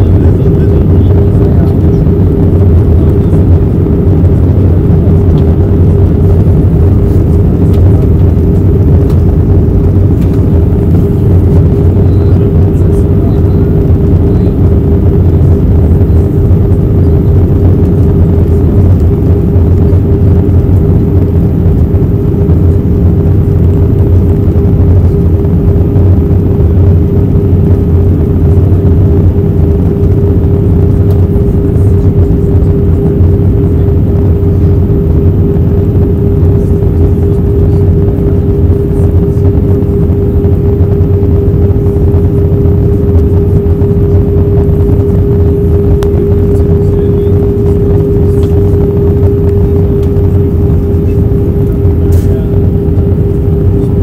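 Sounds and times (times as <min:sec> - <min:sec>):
airplane cabin engine drone: 0:00.0 - 0:54.0
steady hum: 0:00.0 - 0:54.0.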